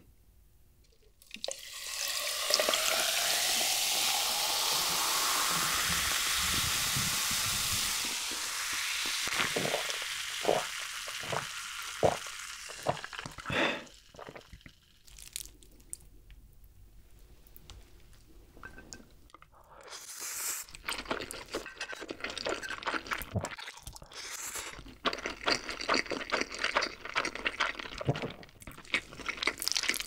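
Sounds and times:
soda pouring and fizzing over ice: 1.2 - 15.6
person gulping: 8.1 - 16.0, 23.0 - 30.0.

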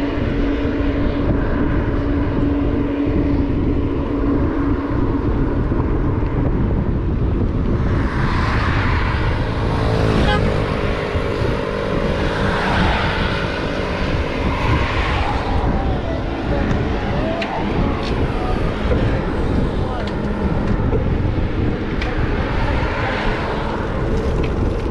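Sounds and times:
engine-like hum: 0.0 - 24.9
road noise: 0.0 - 24.9
wind rumble on microphone: 0.0 - 24.9
vehicle passing by: 7.7 - 24.9.

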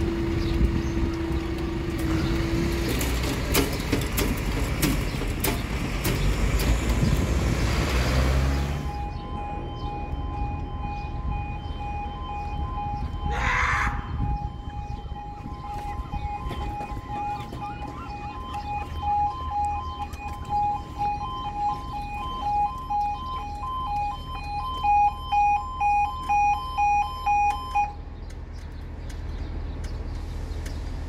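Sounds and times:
two-tone crossing alarm: 8.6 - 28.0.

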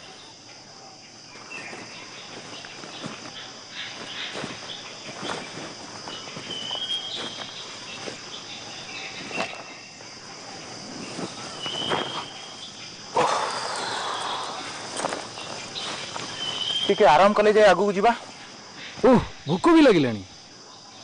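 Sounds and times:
crickets and insects droning: 0.0 - 21.0
footsteps on stony ground: 1.3 - 17.2
rustling noise: 1.5 - 12.8, 14.6 - 16.9.

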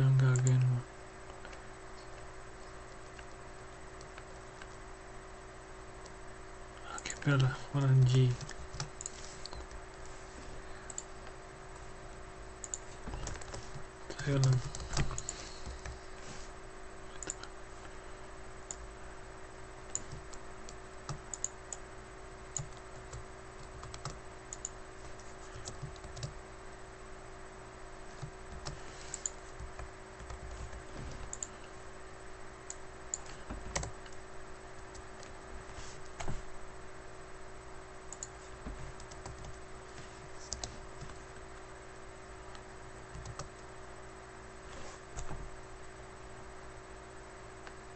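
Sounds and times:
steady hum: 0.0 - 47.9
computer keyboard typing: 6.9 - 9.8, 12.6 - 16.0, 19.9 - 21.8, 22.5 - 26.4, 28.1 - 31.5, 33.1 - 34.2, 38.1 - 39.6, 43.1 - 43.6.

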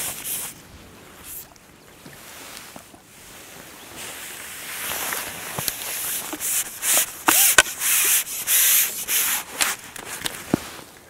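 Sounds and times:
net handle scraping: 4.8 - 10.7.

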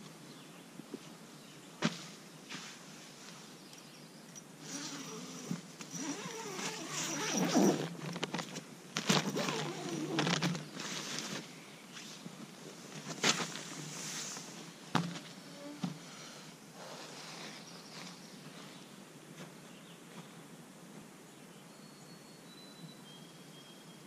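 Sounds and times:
tent zipper opening: 4.6 - 8.4, 9.0 - 11.4
nylon tent fabric rustling: 4.6 - 15.8.

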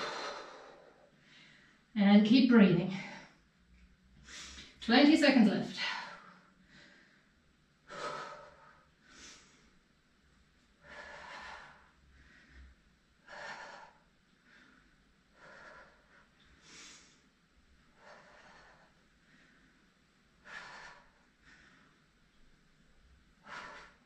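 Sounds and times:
person breathing hard: 0.0 - 1.8, 5.8 - 9.8, 10.8 - 17.3, 17.9 - 22.4, 23.4 - 24.0.

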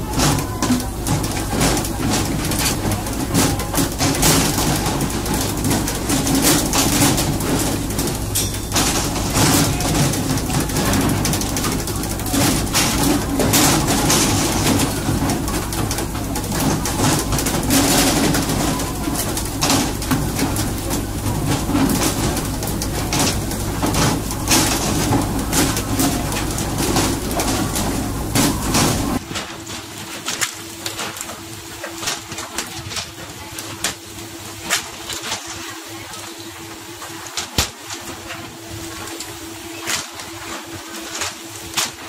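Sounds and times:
boat engine running: 0.0 - 29.3.

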